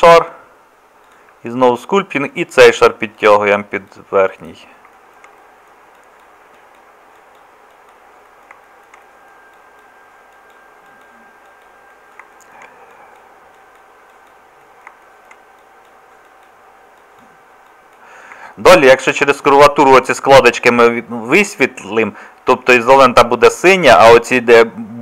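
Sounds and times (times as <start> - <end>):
faint electrical whine: 0.0 - 25.0
computer mouse clicks: 1.0 - 1.4, 3.8 - 18.4.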